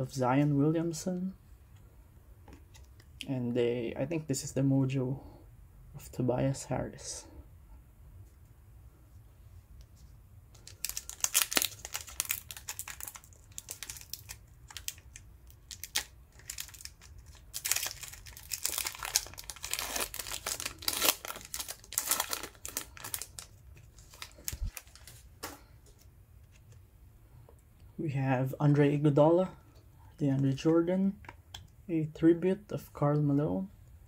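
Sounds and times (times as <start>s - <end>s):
wrapper rustling: 10.5s - 26.1s
foil pack crinkling and tearing: 10.6s - 25.3s.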